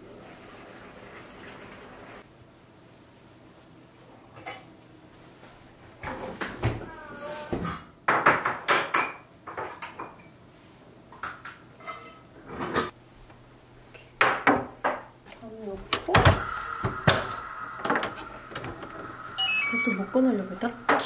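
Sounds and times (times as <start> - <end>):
dishes and utensils clinking: 11.8 - 12.7.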